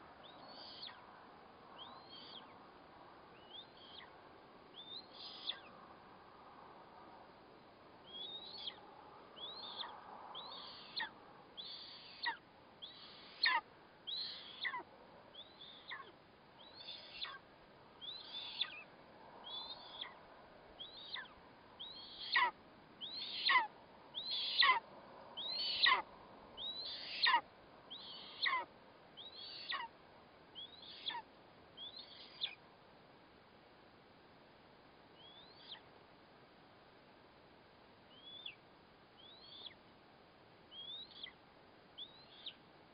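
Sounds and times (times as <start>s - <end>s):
eagle chick begging calls: 0.2s - 1.0s, 1.8s - 2.5s, 4.8s - 5.7s, 8.1s - 8.8s, 9.4s - 17.4s, 18.0s - 20.2s, 20.8s - 24.8s, 25.4s - 29.9s, 30.6s - 32.6s, 35.2s - 35.9s, 38.1s - 38.6s, 39.2s - 39.8s, 40.7s - 41.4s, 42.0s - 42.6s.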